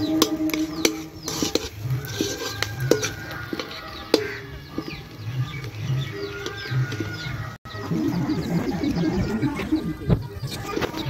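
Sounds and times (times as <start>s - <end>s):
metal spatula scraping iron pan: 0.0s - 7.2s
birds chirping: 0.0s - 11.0s.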